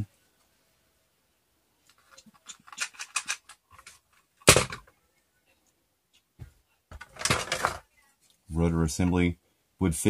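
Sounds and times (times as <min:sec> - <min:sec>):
plastic toy parts clicking: 0:01.9 - 0:04.8
plastic parts clattering: 0:01.9 - 0:04.9, 0:06.9 - 0:07.9.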